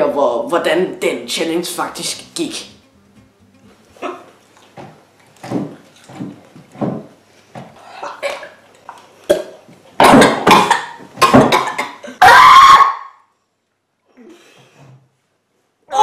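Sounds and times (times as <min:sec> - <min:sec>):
boys coughing and gasping: 0:08.0 - 0:08.6, 0:10.0 - 0:12.4
boys crying out and yelling: 0:12.0 - 0:13.0.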